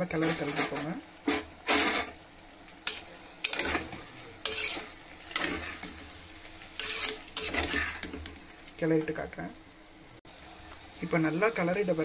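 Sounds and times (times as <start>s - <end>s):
metal spoon scraping a pot: 0.2s - 2.2s, 2.8s - 6.0s, 6.8s - 8.4s.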